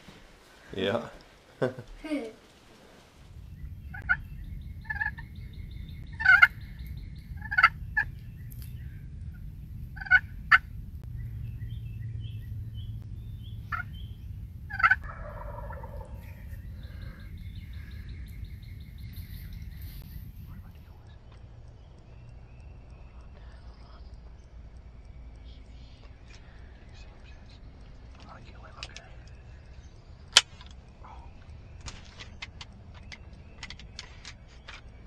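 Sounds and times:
low rumble: 0:03.0 - 0:33.6
small birds chirping: 0:03.2 - 0:35.0
turkey gobbling: 0:03.8 - 0:05.4, 0:06.1 - 0:08.2, 0:10.0 - 0:10.7, 0:13.7 - 0:14.0, 0:14.7 - 0:17.3.

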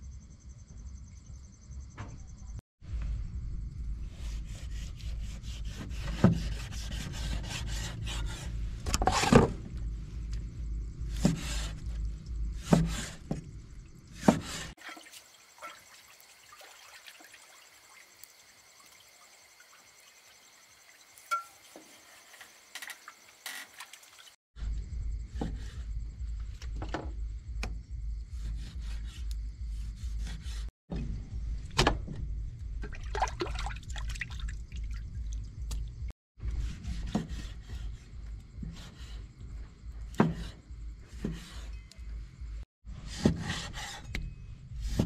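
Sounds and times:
steady low hum: 0:00.0 - 0:05.7, 0:09.6 - 0:14.1, 0:24.6 - 0:33.6.

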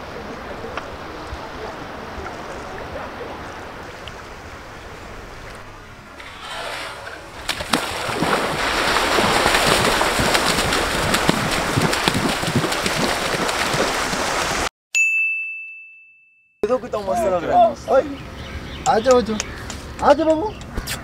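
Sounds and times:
running through shallow water: 0:00.0 - 0:14.7.

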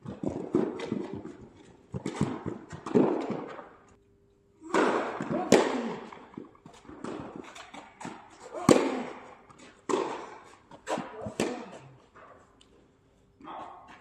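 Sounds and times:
ball bouncing: 0:00.0 - 0:03.8, 0:04.7 - 0:12.0
racket striking ball: 0:00.1 - 0:03.7, 0:04.6 - 0:12.2.

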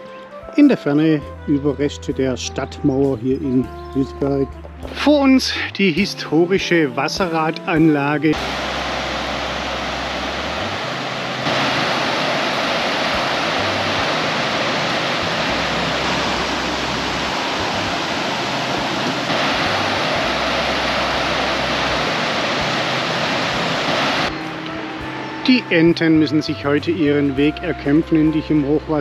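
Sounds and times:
floodwater rushing: 0:08.3 - 0:26.6.

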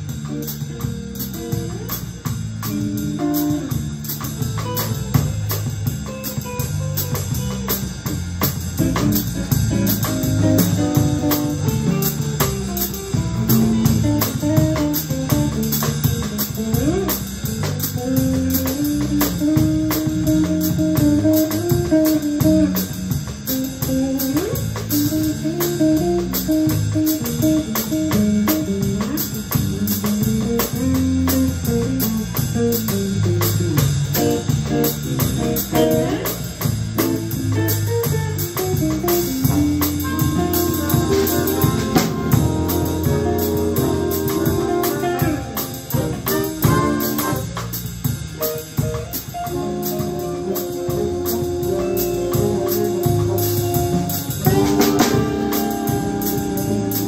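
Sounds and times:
bass: 0:00.0 - 0:57.0
drum kit cymbals: 0:00.0 - 0:57.0
electric guitar solo: 0:34.2 - 0:47.6, 0:48.4 - 0:57.0
horn chords: 0:39.4 - 0:57.0.

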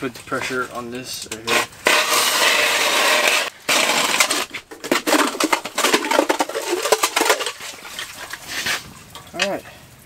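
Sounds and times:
ice auger grinding through ice: 0:01.5 - 0:07.6.

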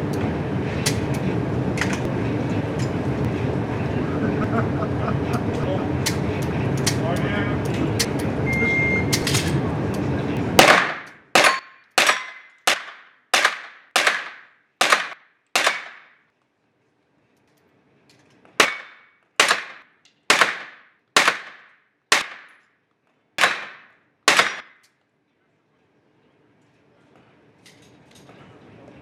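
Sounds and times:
handgun shots echoing indoors: 0:10.6 - 0:16.0, 0:23.4 - 0:24.8.

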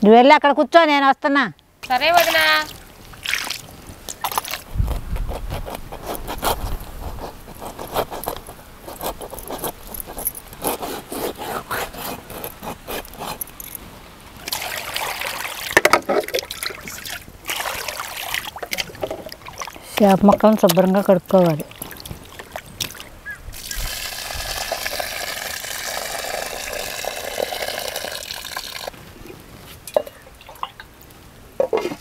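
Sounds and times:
knife scraping fish: 0:04.9 - 0:13.6
water poured into steel bowl: 0:23.6 - 0:28.9.

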